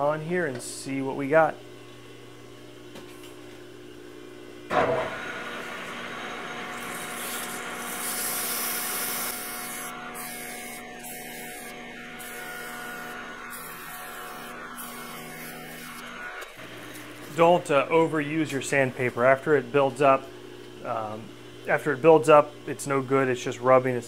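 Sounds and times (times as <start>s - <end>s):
metal lathe running: 4.7s - 19.2s
sandpaper rubbing on spinning bar: 6.9s - 16.4s.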